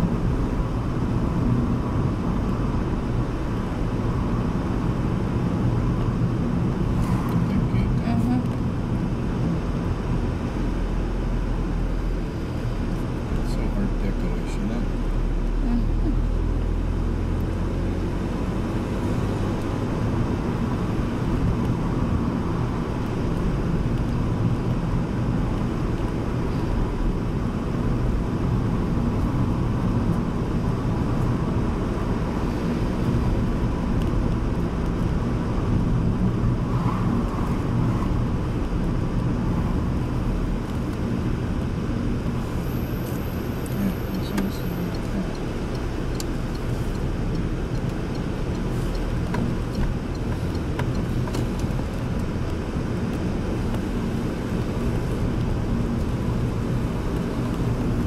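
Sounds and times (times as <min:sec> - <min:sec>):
car engine and tyre noise: 0:00.0 - 0:58.0.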